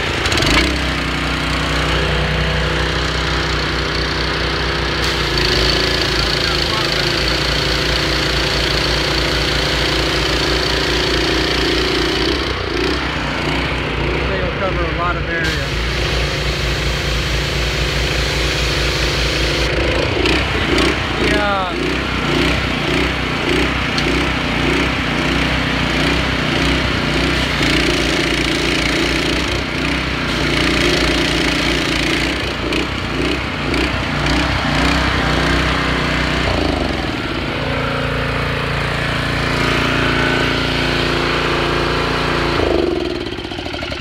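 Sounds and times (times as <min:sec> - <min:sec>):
small gas engines droning: 0:00.0 - 0:44.0.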